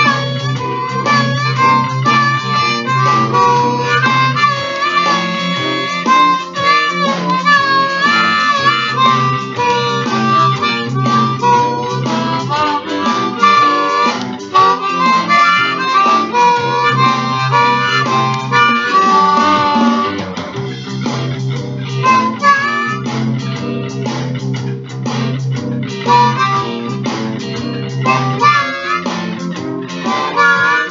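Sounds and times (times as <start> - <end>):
blues harmonica: 0.0 - 30.9
guitar accompaniment: 0.0 - 30.9.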